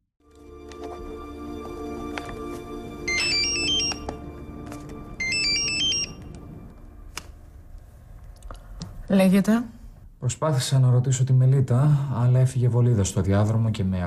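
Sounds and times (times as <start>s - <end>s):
soft background music: 0.2s - 9.6s
phone ringtone: 2.9s - 6.6s.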